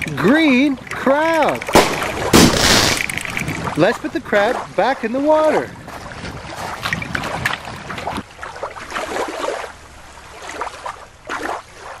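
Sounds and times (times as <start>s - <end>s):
river water splashing at shore: 0.0s - 12.0s.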